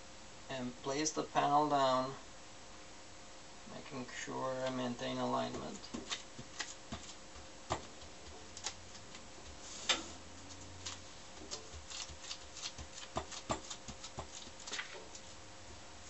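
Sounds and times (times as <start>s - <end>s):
paper rustling: 5.7s - 7.2s, 8.0s - 15.4s.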